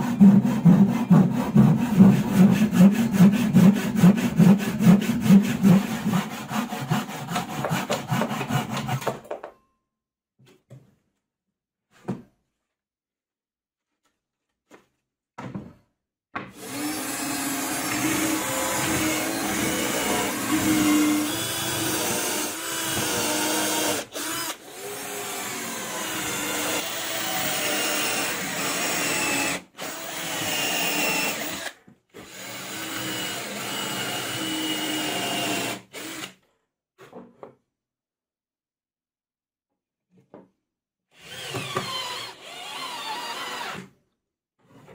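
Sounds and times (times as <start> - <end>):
cordless drill boring into plywood: 16.6 - 36.4, 41.2 - 43.9.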